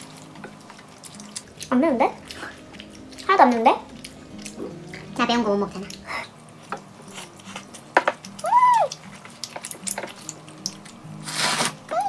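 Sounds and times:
chopsticks and dishes clicking: 6.6s - 11.0s
slurping noodles: 11.2s - 11.8s.

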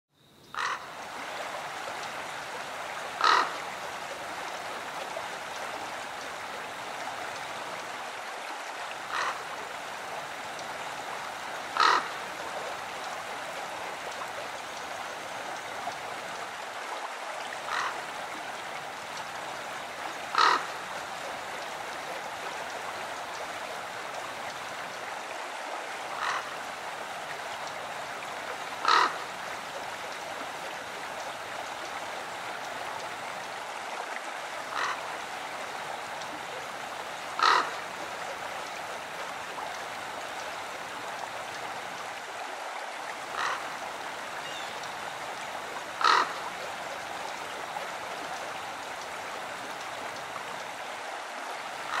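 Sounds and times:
running water: 0.5s - 52.0s.

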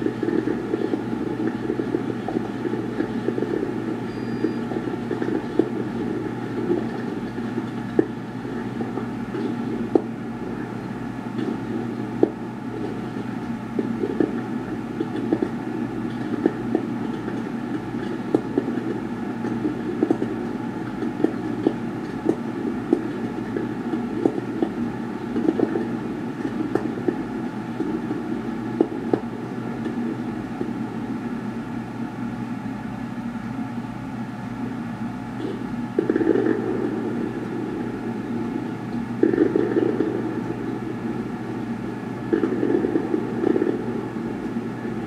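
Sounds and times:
steady low rumble: 0.0s - 32.0s, 35.4s - 45.0s
fireworks bangs and pops: 36.0s - 37.1s, 39.2s - 40.3s.

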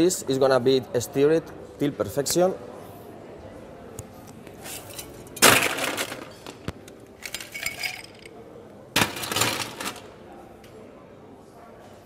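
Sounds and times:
ice cubes clinking in a glass: 7.3s - 8.3s.

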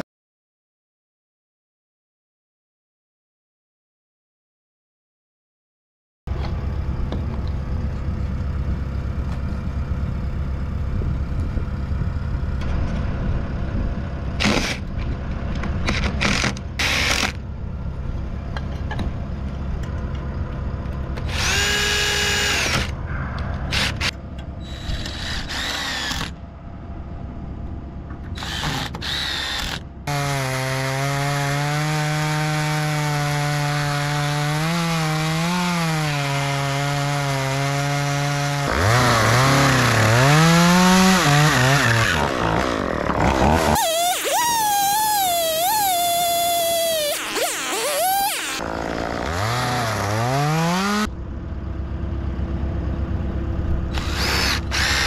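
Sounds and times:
steady low rumble: 6.3s - 29.2s, 51.1s - 55.0s
chainsaw cutting wood: 14.4s - 14.9s, 15.8s - 17.4s, 21.2s - 23.0s, 23.7s - 26.4s, 28.4s - 51.1s, 53.9s - 55.0s
cordless drill whining: 21.2s - 22.9s, 23.7s - 26.4s, 28.4s - 29.8s, 43.7s - 48.6s, 53.9s - 55.0s.

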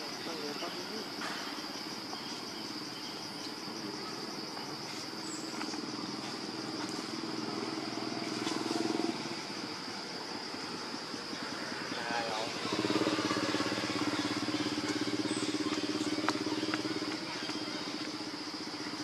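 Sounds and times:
high-pitched insect drone: 0.0s - 19.0s
vehicle engine hum: 5.3s - 19.0s.

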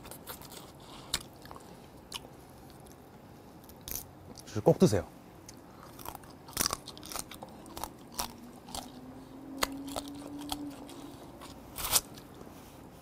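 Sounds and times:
chewing: 0.0s - 3.0s, 5.5s - 12.6s.

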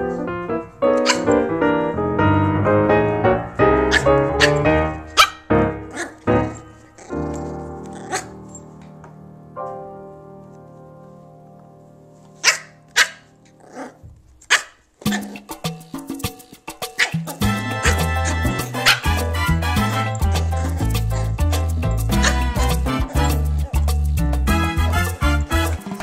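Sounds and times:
piano music: 0.0s - 14.3s, 15.5s - 26.0s
puppy barking: 1.0s - 1.5s, 3.8s - 8.4s, 12.4s - 15.5s, 16.9s - 21.4s, 22.0s - 23.9s
latin dance beat: 15.0s - 26.0s.

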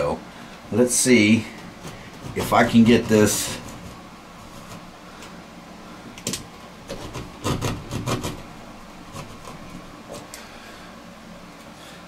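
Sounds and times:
knife scraping plastic: 1.5s - 4.9s, 6.8s - 10.4s.

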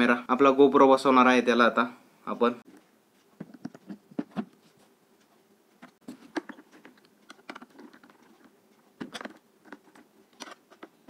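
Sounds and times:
hard plastic parts clicking: 5.8s - 11.0s.

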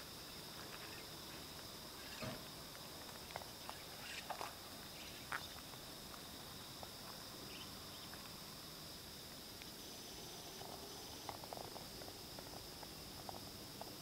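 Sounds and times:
high insect chorus: 0.0s - 14.0s.

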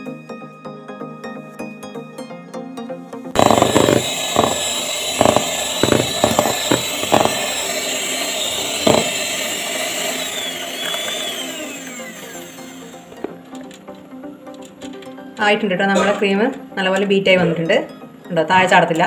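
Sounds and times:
beaters knocking bowl: 3.4s - 9.7s
electric hand mixer whine: 3.4s - 13.7s.

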